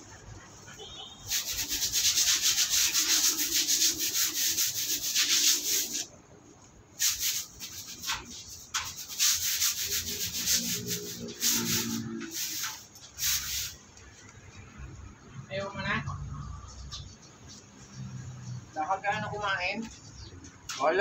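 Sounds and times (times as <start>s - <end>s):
brush scrubbing a cage: 0.0s - 6.1s, 7.0s - 13.8s.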